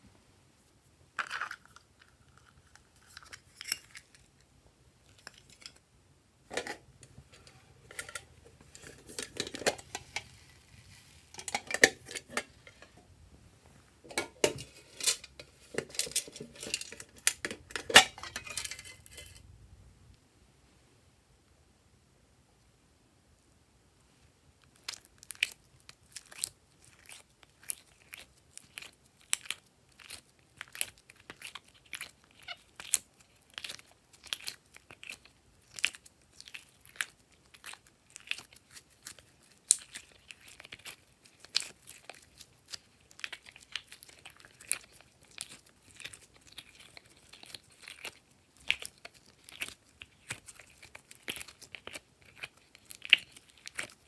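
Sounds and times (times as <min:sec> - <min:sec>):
slime popping and crackling: 0:24.7 - 0:54.0.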